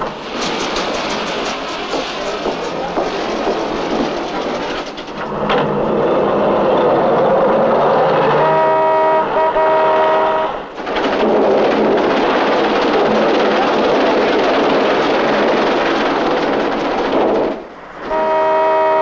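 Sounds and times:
street traffic din: 0.0s - 18.8s
car horn: 8.3s - 10.6s, 18.1s - 19.0s.

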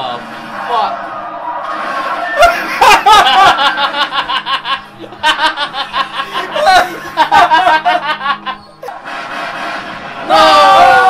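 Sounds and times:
people laughing hard: 2.2s - 9.0s.

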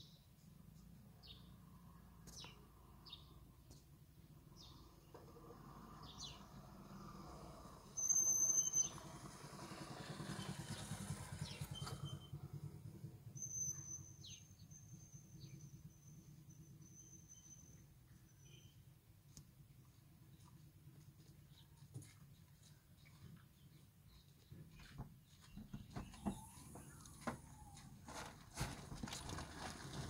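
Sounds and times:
motorcycle engine: 8.8s - 14.4s
small birds chirping: 10.3s - 12.3s, 13.4s - 18.9s, 20.3s - 27.8s.

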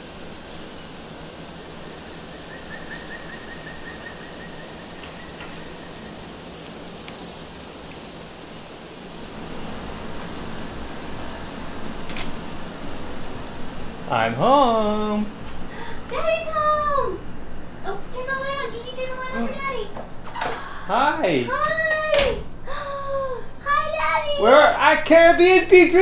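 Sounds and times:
small birds chirping: 0.0s - 17.0s
steady hiss: 0.0s - 26.0s
bird trill: 1.9s - 8.3s.

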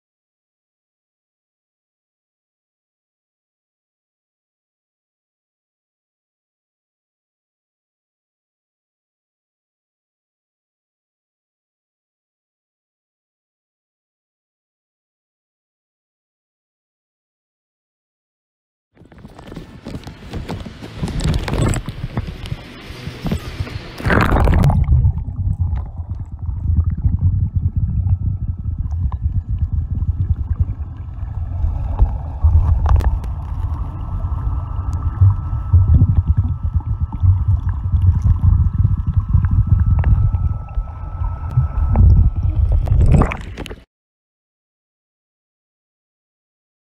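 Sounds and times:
water gurgling and sloshing: 19.0s - 43.9s.

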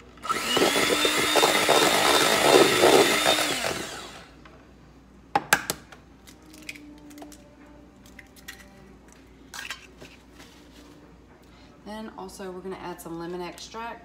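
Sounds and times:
electric hand mixer running: 0.2s - 4.4s.

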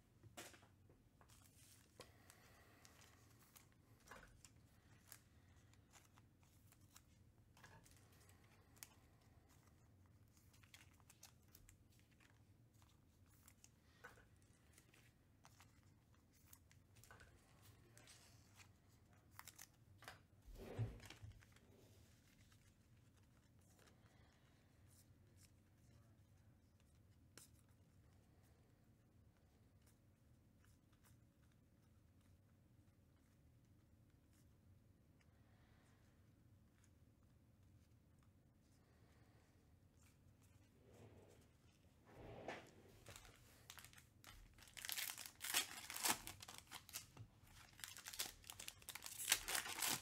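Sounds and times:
foil packs crinkling and tearing: 43.0s - 50.0s.

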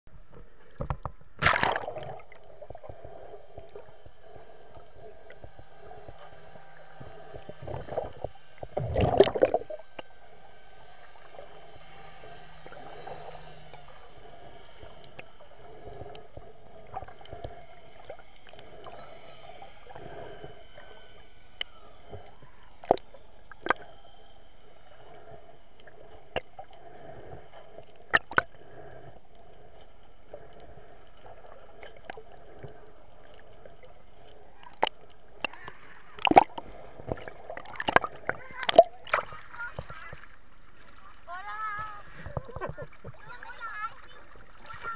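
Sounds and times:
dull underwater hum: 0.1s - 44.9s
splashing bubbling rush: 1.4s - 2.8s, 8.8s - 9.8s.

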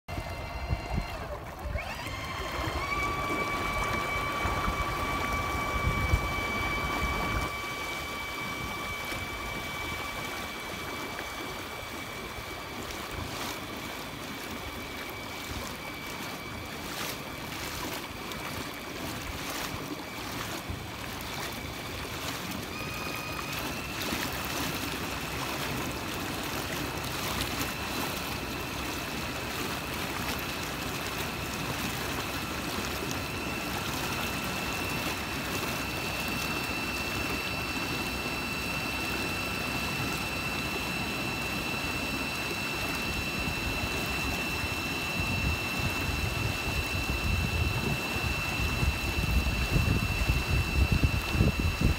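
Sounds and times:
small motor whining: 0.1s - 51.9s
water lapping: 0.1s - 51.9s
wind noise: 45.2s - 51.9s.

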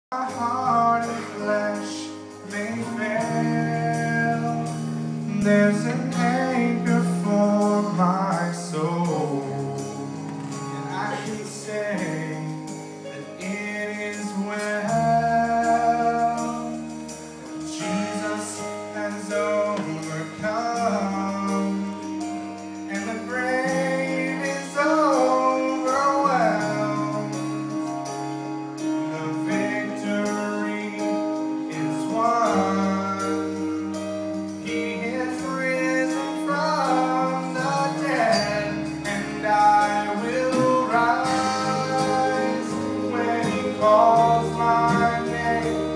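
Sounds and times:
instrumental accompaniment: 0.1s - 45.9s
low bass notes: 0.1s - 45.9s
choir singing: 38.3s - 45.9s.

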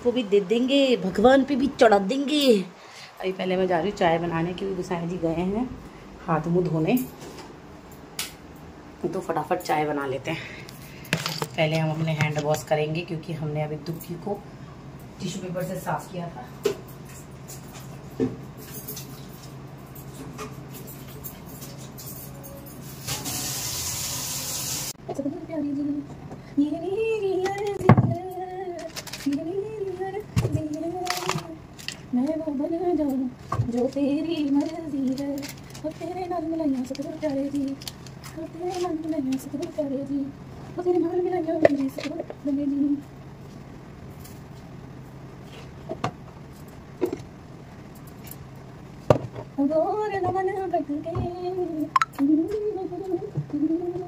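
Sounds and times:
tap water running: 23.0s - 25.0s
low steady hum: 24.9s - 54.0s.

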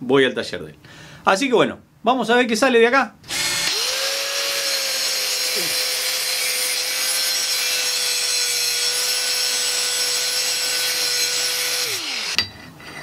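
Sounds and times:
motor winding down: 3.3s - 6.2s, 11.7s - 12.4s
electric drill spinning: 3.3s - 12.4s
angle grinder grinding steel: 3.3s - 13.0s.

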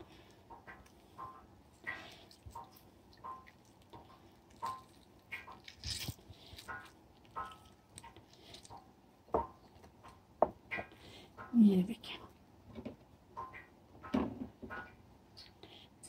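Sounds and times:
juice dripping: 0.1s - 9.6s
lemon squishing by hand: 1.7s - 9.0s.

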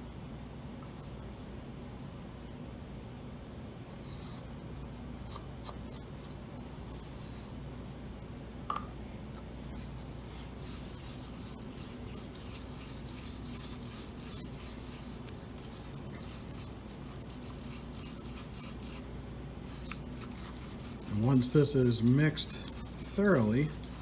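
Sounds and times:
steady low hum: 0.0s - 24.0s
stir stick scraping paper cup: 9.6s - 24.0s.

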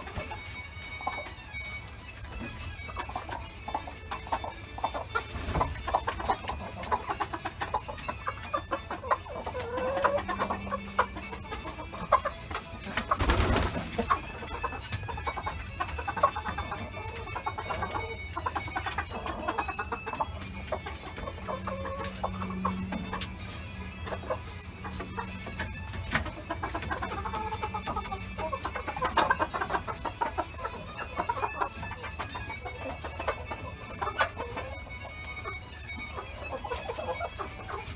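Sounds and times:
chickens clucking: 0.0s - 37.9s
wings flapping: 12.6s - 14.3s.

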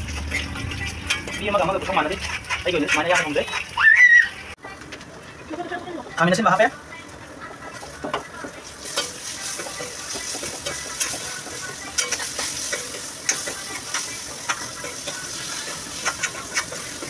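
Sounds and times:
steel spoon scraping a pan: 0.0s - 3.8s, 8.8s - 17.0s
food sizzling in oil: 0.0s - 4.6s, 6.1s - 17.0s.

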